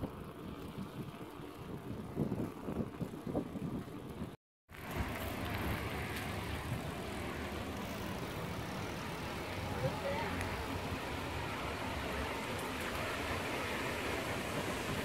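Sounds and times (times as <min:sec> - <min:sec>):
bicycle tyres rolling on pavement: 0:00.0 - 0:15.0
wind buffeting microphone: 0:00.0 - 0:15.0
steady rushing noise: 0:04.8 - 0:15.0.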